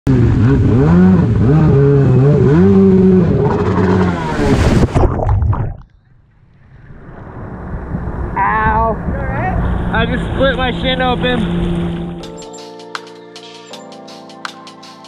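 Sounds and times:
jet ski engine running hard: 0.1 - 4.6, 8.5 - 12.3
rushing water: 0.4 - 5.9
splashing: 2.1 - 6.0.

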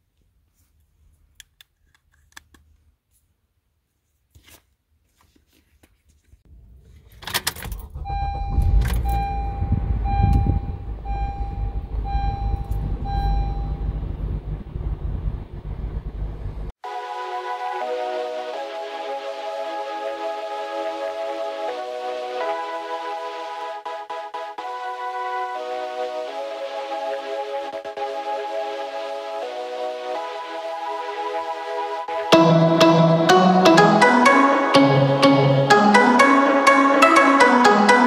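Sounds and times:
car engine starting and idling: 6.5 - 16.8
car keys jangling: 7.0 - 9.3
dashboard warning chime: 7.8 - 14.7
music: 16.8 - 38.0.

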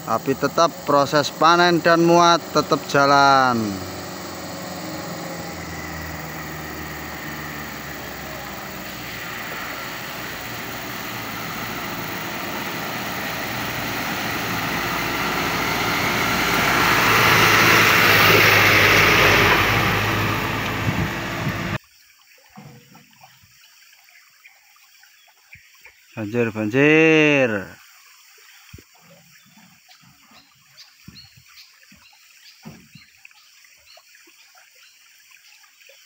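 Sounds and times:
diesel truck engine running: 0.0 - 21.8
water splashing: 0.0 - 21.8.

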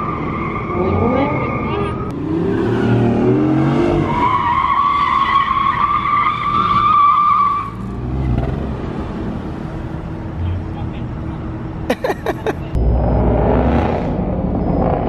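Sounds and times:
sports car engine revving: 12.8 - 15.0.

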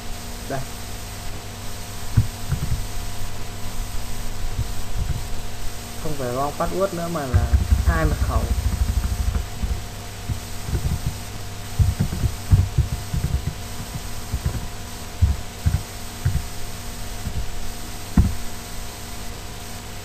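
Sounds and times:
steady electrical hum: 0.0 - 20.0
keyboard keys typing: 11.8 - 16.5.

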